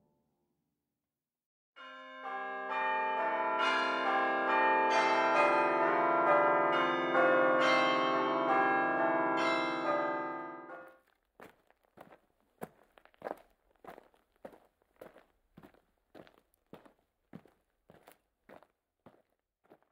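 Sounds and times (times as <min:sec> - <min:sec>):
church bells ringing: 0:01.8 - 0:10.9.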